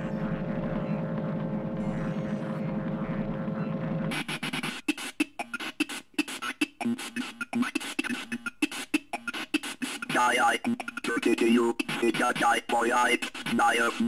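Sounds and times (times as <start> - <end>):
steady humming drone: 0.0 - 4.3.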